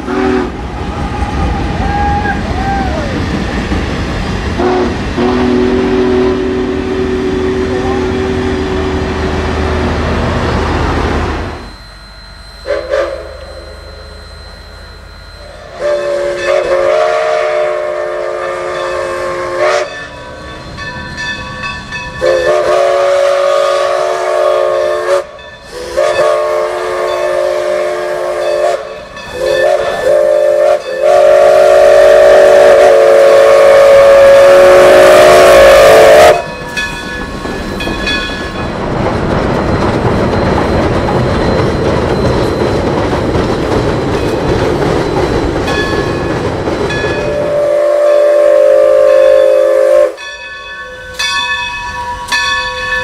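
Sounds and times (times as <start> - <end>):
two-note train whistle: 0.0 - 0.6, 4.6 - 9.4, 11.4 - 20.0, 22.2 - 36.5, 47.2 - 50.3
steam locomotive chime whistle: 0.0 - 3.1, 4.6 - 38.8, 44.3 - 53.0
train running on rails: 0.0 - 53.0.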